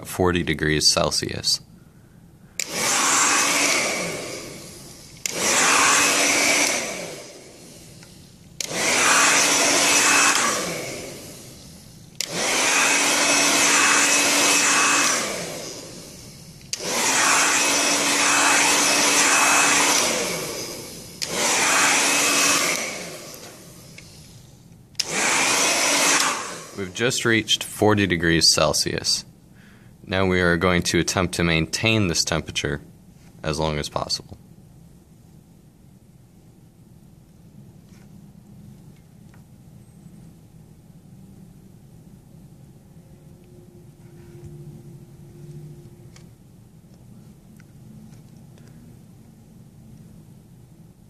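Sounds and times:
hair dryer whining: 2.6s - 27.6s.

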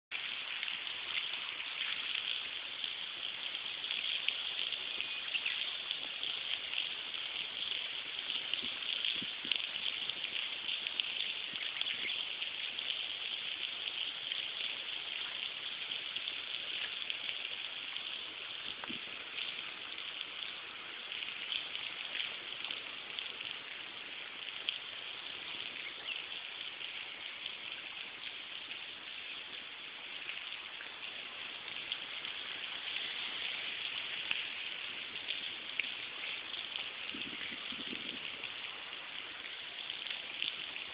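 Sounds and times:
water hissing: 28.9s - 40.9s.

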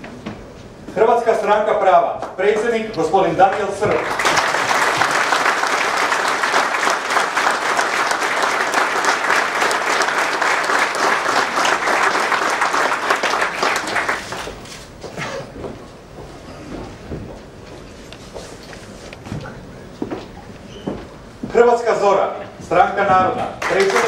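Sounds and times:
audience applauding: 3.5s - 14.7s, 23.6s - 24.0s.

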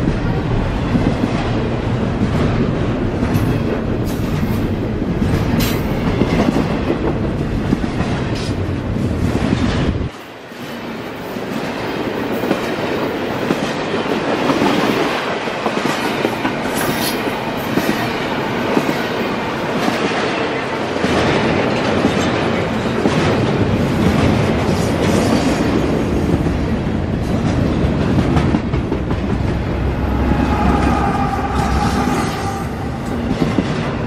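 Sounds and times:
freight train wheels on rail: 0.0s - 34.0s
deep rumble: 28.8s - 34.0s.

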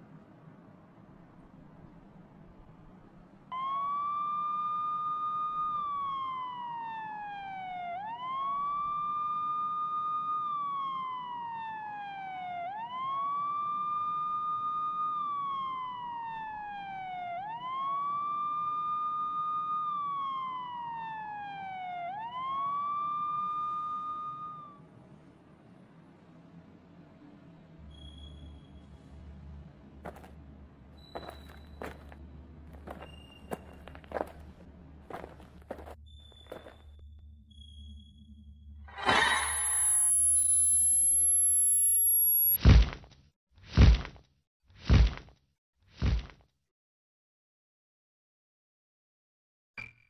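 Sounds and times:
emergency vehicle siren wailing: 3.5s - 25.2s.

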